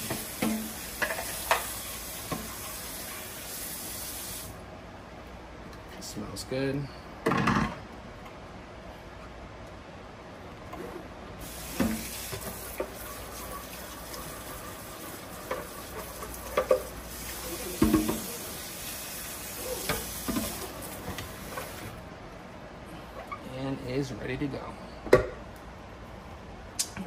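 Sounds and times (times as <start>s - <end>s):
tap water running: 0.0s - 4.5s, 11.4s - 22.0s.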